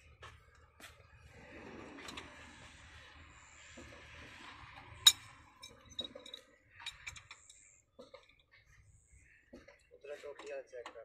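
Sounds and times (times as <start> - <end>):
metal tools clinking: 5.1 - 8.5.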